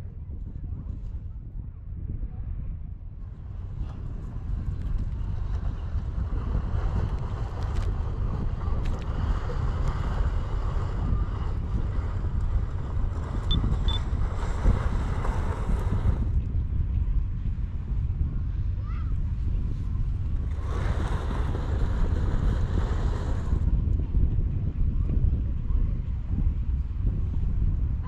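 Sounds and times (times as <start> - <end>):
wind buffeting microphone: 0.0 - 28.0.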